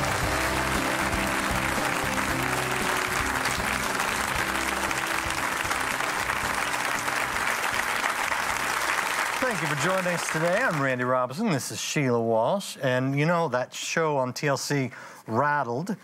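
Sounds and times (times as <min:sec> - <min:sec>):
audience applauding: 0:00.0 - 0:11.2
television theme music: 0:00.0 - 0:11.7.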